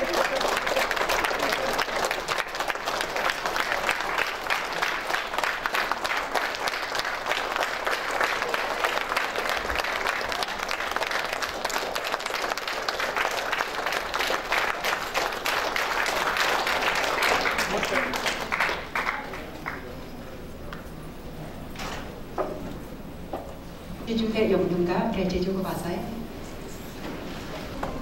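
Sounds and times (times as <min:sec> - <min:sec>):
audience applauding: 0:00.0 - 0:20.5.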